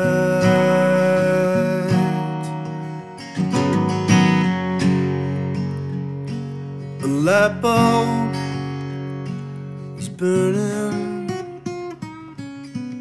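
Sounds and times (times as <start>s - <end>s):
acoustic guitar chords: 0.0s - 13.0s.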